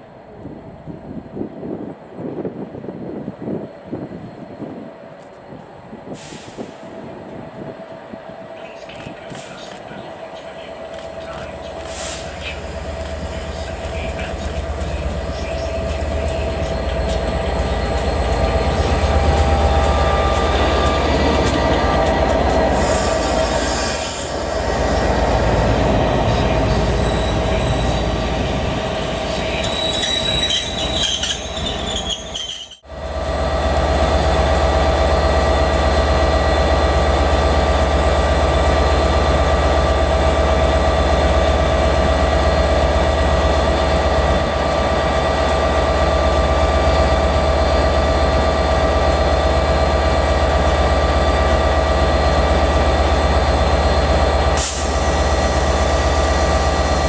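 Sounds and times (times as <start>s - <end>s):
train hum: 0.0s - 57.0s
high wheel squeal: 22.7s - 25.5s, 26.3s - 32.8s.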